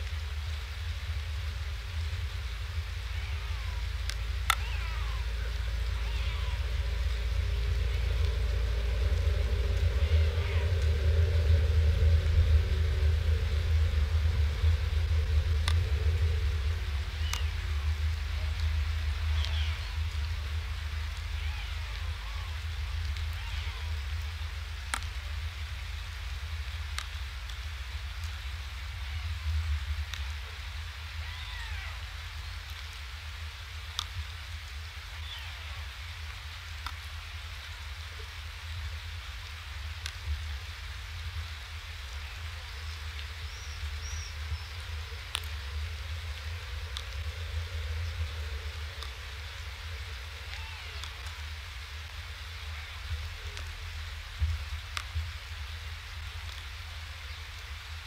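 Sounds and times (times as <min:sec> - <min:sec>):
rain rumble and hiss: 0:00.0 - 0:58.0
raindrops ticking on microphone: 0:00.0 - 0:58.0
small bird chirp: 0:42.2 - 0:45.6.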